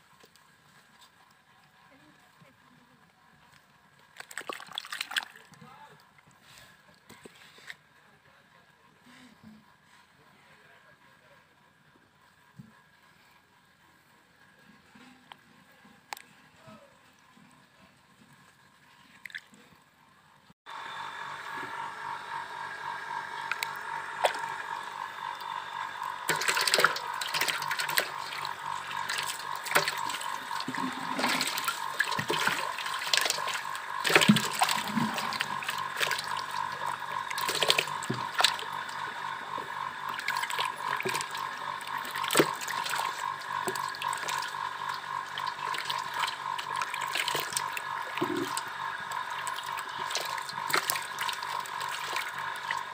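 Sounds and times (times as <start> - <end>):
fish splashing in water: 4.1 - 5.5, 23.4 - 52.9
steady whining tone: 20.7 - 52.9.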